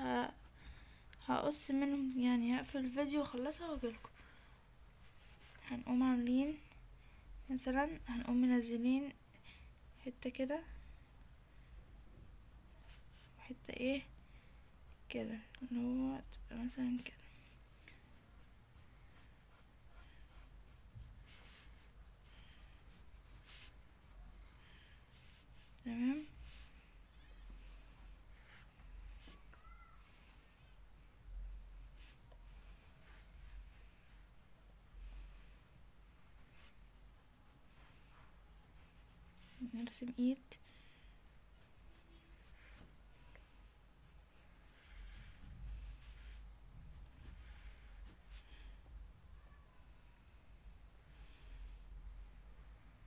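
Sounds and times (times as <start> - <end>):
pencil scratching on paper: 10.3 - 17.2, 18.0 - 40.2, 40.8 - 53.0.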